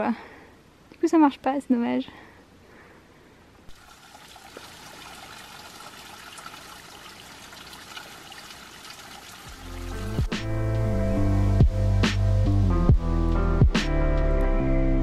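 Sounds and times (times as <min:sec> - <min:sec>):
water trickling onto stones: 0:03.7 - 0:10.0
water dripping: 0:03.7 - 0:10.3.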